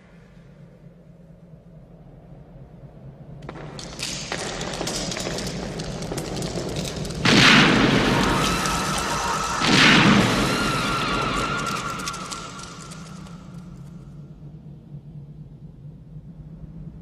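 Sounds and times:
film score music: 5.7s - 16.4s.

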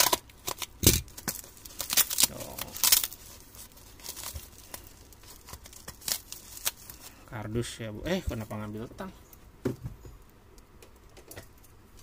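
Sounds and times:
plastic bag ripping: 0.0s - 7.1s
plastic crinkling: 0.0s - 7.3s.

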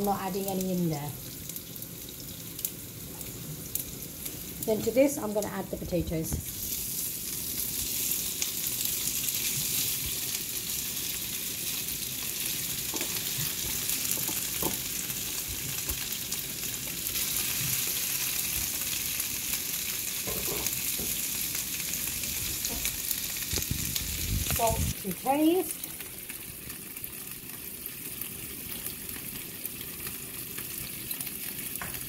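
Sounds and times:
oil sizzling in pan: 0.0s - 32.0s.

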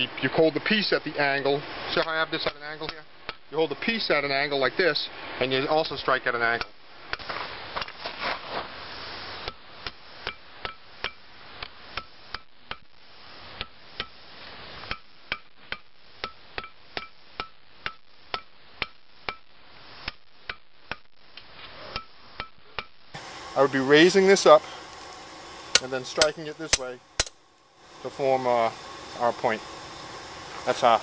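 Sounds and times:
hammer striking metal on anvil: 25.7s - 27.4s.

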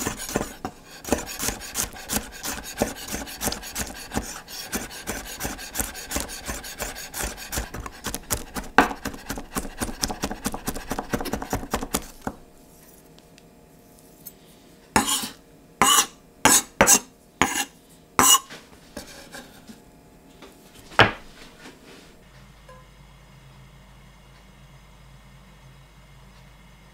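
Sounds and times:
knife blade scraping board: 0.0s - 12.4s, 15.0s - 19.7s
knife chopping on wooden board: 0.0s - 12.4s, 15.0s - 19.2s, 21.0s - 21.3s.

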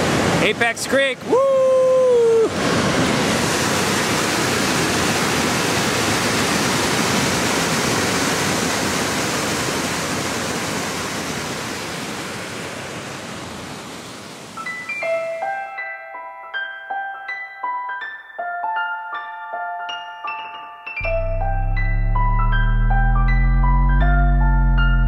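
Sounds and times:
person shouting woo: 1.3s - 2.5s
rushing whitewater rapids: 2.3s - 14.6s.

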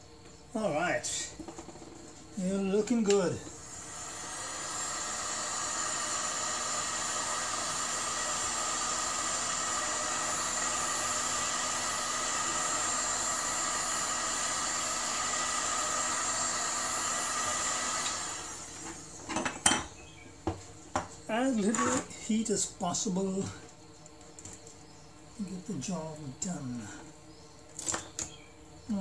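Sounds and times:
heat gun fan whine: 0.0s - 29.0s.

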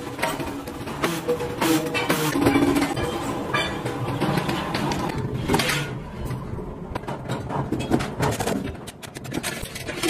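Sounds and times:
steel plates clanking and scraping: 1.6s - 6.2s.

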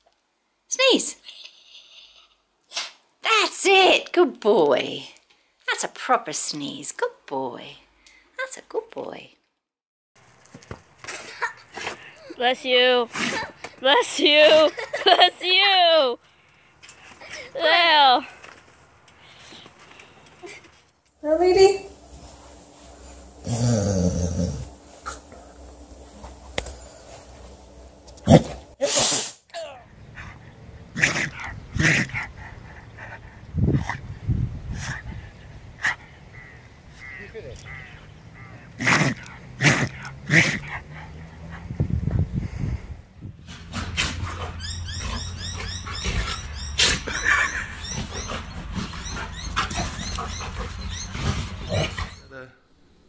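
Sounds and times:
dog sneezing: 2.7s - 3.0s, 28.3s - 29.4s, 46.8s - 47.2s
dogs play-fighting: 43.4s - 52.3s.

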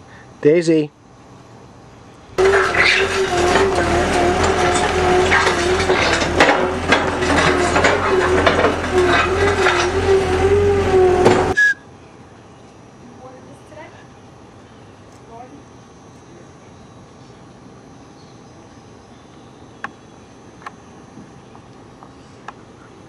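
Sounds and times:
crunching and clicking: 2.4s - 11.6s
machine humming: 2.4s - 11.6s.

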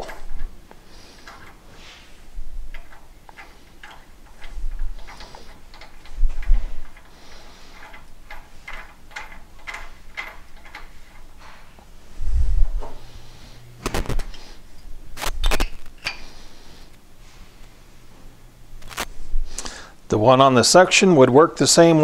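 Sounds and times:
metal valve clicking on threads: 0.0s - 1.6s, 2.7s - 11.3s.

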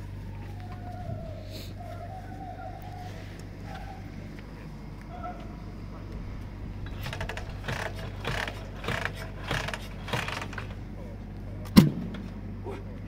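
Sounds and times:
motorcycle engine being kicked over: 6.8s - 10.9s.

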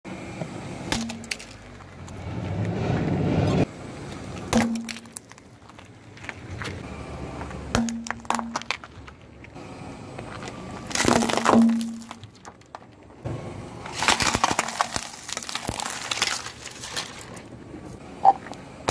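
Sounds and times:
shells crunching under wheel: 0.9s - 2.8s, 4.1s - 6.8s, 7.4s - 9.6s, 10.2s - 13.2s, 13.8s - 17.6s
plastic cracking under tyre: 10.3s - 13.2s, 13.8s - 17.5s.

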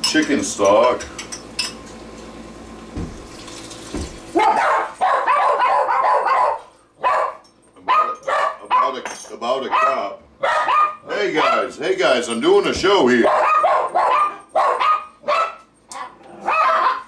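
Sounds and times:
liquid pouring into pot: 1.6s - 4.4s
dogs barking: 4.3s - 11.8s, 13.2s - 17.0s.

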